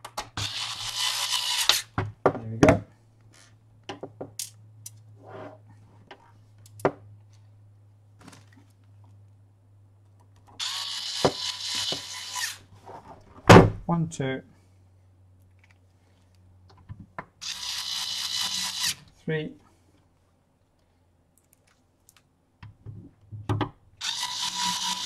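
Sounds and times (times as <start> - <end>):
cordless electric screwdriver running: 0.4 - 1.8, 10.6 - 12.6, 17.4 - 19.0, 24.0 - 25.0.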